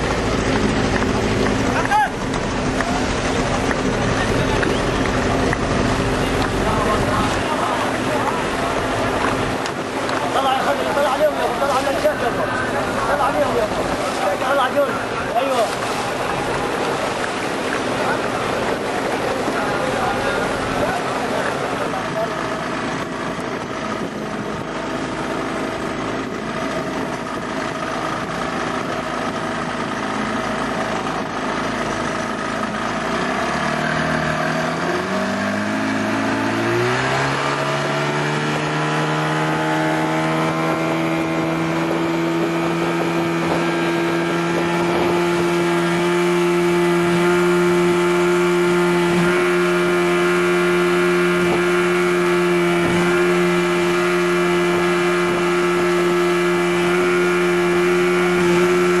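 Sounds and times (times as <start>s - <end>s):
motorboat engine running: 0.0s - 59.0s.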